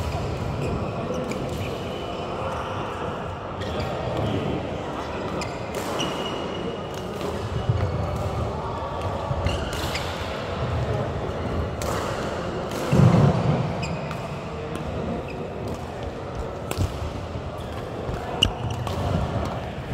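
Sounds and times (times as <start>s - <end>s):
echoing background chatter: 0.0s - 19.9s
shoes squeaking on court floor: 13.8s - 14.3s, 17.6s - 19.3s
rackets hitting shuttlecocks: 15.6s - 19.6s.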